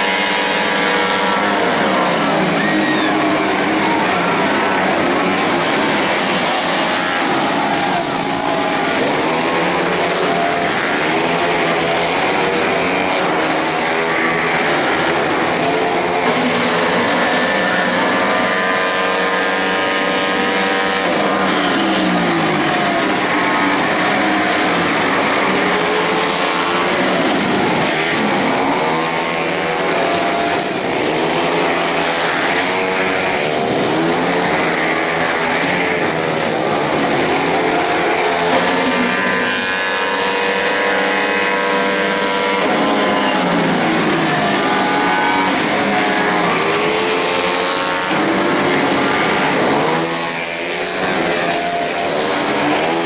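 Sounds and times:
motorcycles revving past: 0:00.0 - 0:53.0.

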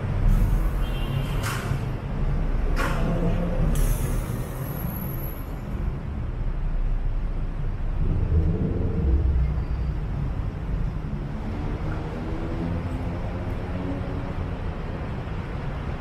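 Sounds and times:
bus engine running: 0:00.0 - 0:16.0
low traffic rumble: 0:00.0 - 0:16.0
bus air brake hiss: 0:00.2 - 0:01.8, 0:03.7 - 0:05.7.

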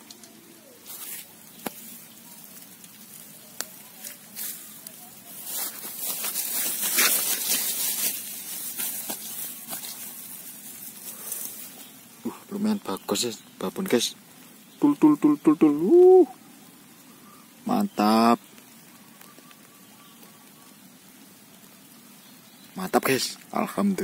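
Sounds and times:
grass and weeds rustling: 0:00.0 - 0:24.0.

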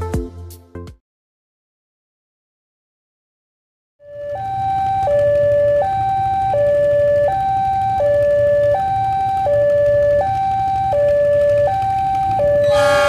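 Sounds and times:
two-tone crossing warning alarm: 0:04.0 - 0:13.0.

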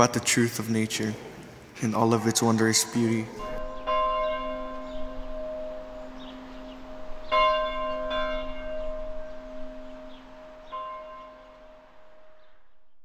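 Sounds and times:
large bell tolling: 0:01.8 - 0:12.8.

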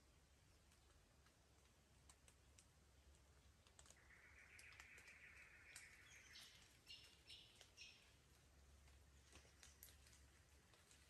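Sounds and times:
raindrops dripping on leaves: 0:00.0 - 0:11.0
bird calling: 0:04.0 - 0:08.2.

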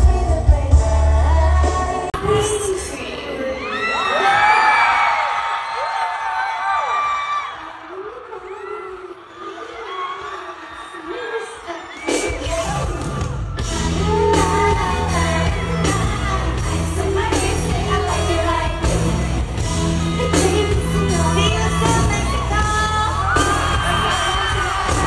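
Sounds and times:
pop song over sound system: 0:00.0 - 0:25.0
women singing along live: 0:08.3 - 0:25.0.

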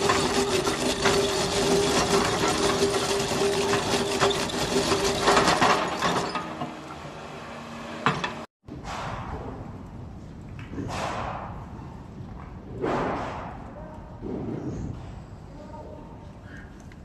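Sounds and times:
drum cutter grinding rock: 0:00.0 - 0:06.7.

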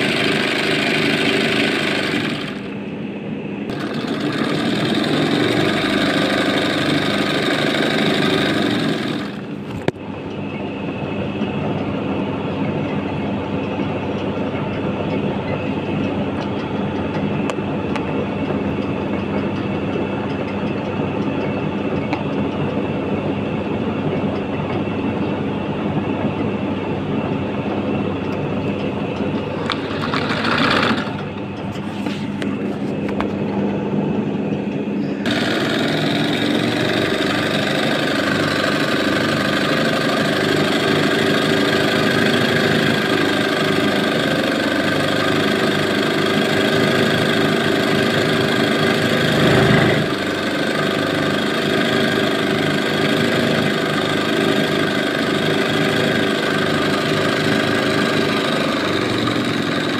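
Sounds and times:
sewing machine running: 0:00.0 - 0:02.8, 0:03.7 - 0:09.8, 0:29.4 - 0:31.4, 0:35.2 - 0:59.9.

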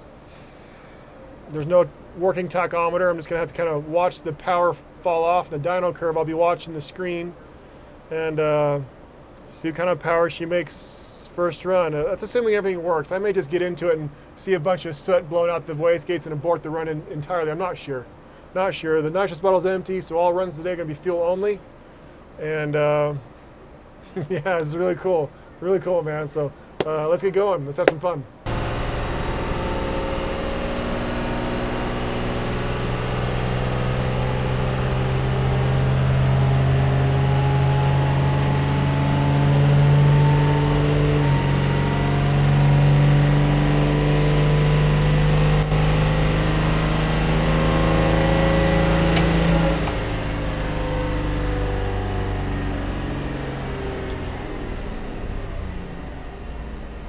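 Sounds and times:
diesel engine under full load: 0:28.4 - 0:57.0
turbo whine: 0:28.5 - 0:57.0.

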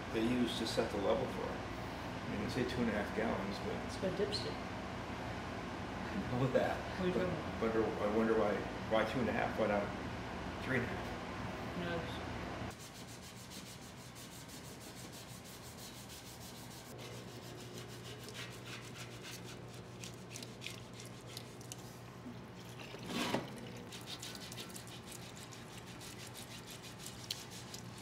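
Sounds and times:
steady low hum: 0:00.0 - 0:28.0
brush scrubbing metal: 0:12.7 - 0:21.8, 0:23.0 - 0:28.0.

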